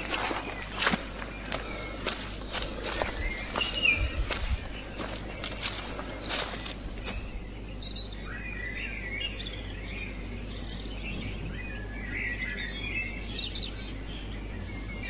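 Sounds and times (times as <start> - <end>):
footsteps: 0.0 - 7.4
outdoor background hum: 0.0 - 15.0
small birds chirping: 0.0 - 15.0.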